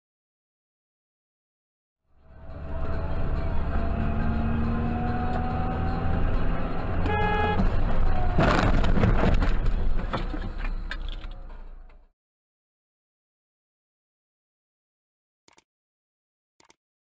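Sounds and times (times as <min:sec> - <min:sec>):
vehicle engine drone: 0:02.1 - 0:12.1
rushing rattling truck passing: 0:02.2 - 0:11.2
tyres on wet road: 0:02.2 - 0:12.1
short horn toot: 0:07.0 - 0:07.7.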